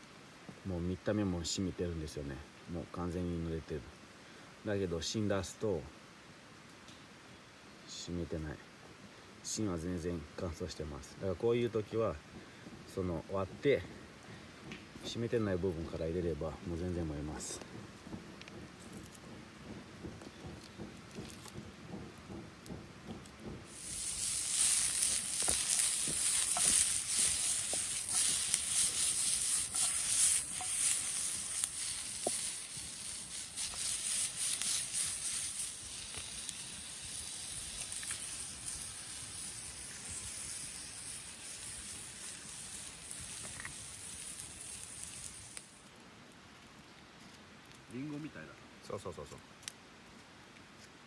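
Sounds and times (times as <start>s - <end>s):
sausages frying: 10.3s - 46.6s.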